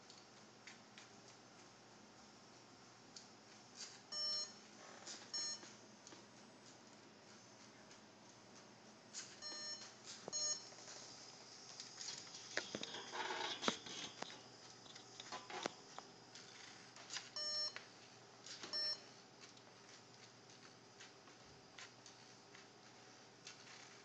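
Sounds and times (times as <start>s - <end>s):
short electronic beeps: 4.1s - 4.6s, 5.3s - 5.6s, 9.4s - 10.7s, 17.4s - 17.8s, 18.7s - 19.0s.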